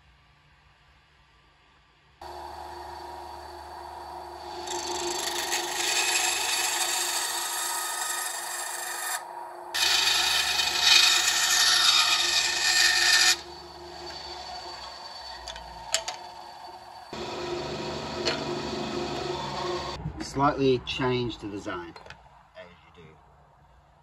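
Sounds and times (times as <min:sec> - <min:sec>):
bandsaw cutting wood: 0:02.2 - 0:20.0.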